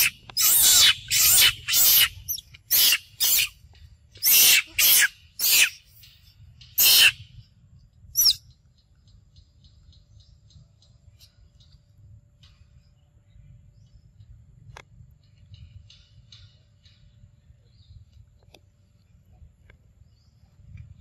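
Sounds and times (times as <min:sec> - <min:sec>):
monkey screaming: 0:00.0 - 0:03.5, 0:04.2 - 0:05.8, 0:06.8 - 0:07.2, 0:08.2 - 0:08.4.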